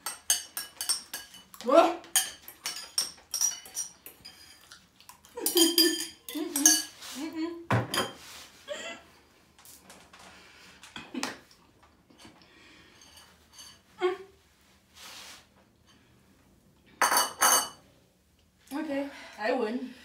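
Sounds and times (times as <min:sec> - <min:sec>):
cutlery clinking against bowls: 0:00.0 - 0:07.1, 0:12.2 - 0:13.9, 0:17.0 - 0:17.8.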